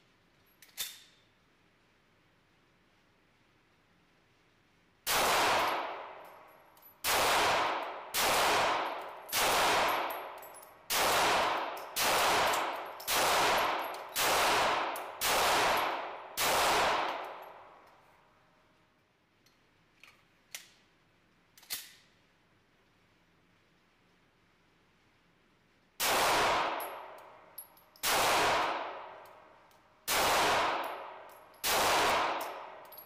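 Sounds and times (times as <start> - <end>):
metal clicks of pistol handling: 0.4 - 1.3, 10.1 - 10.8, 11.8 - 13.1, 13.8 - 14.2, 19.4 - 20.9, 21.5 - 22.2, 26.8 - 28.1, 29.2 - 29.9, 30.8 - 31.7, 32.4 - 33.0
pistol shots echoing indoors: 5.1 - 18.1, 26.0 - 33.0.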